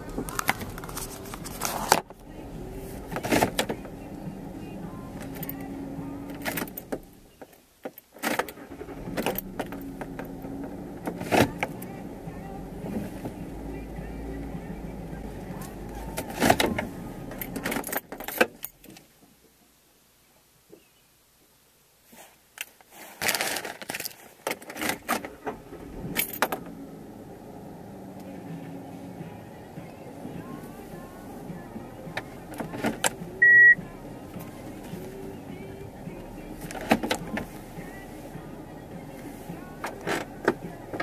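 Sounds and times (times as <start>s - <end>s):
vehicle engine humming: 0.0s - 7.5s, 8.5s - 19.0s, 25.0s - 41.0s
clicks and rattles: 22.6s - 26.7s, 36.6s - 37.6s, 39.2s - 41.0s.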